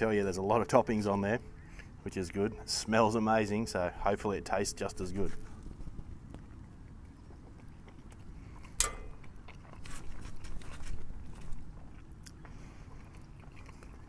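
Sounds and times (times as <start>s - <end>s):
crunchy chewing: 4.9s - 14.0s
crunchy pizza crust bite: 5.3s - 14.0s.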